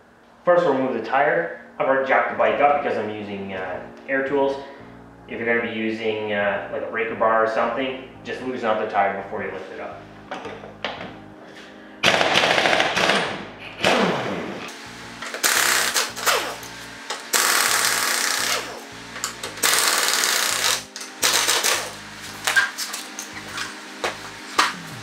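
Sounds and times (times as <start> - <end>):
impact wrench rattling: 17.3 - 22.0.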